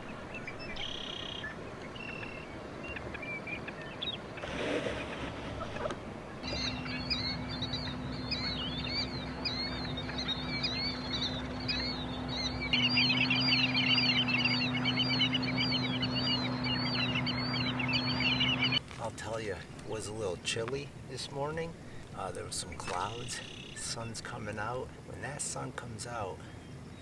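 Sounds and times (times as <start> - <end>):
steady low hum: 0.0 - 18.9
flock of birds calling: 0.0 - 20.4, 21.9 - 24.1.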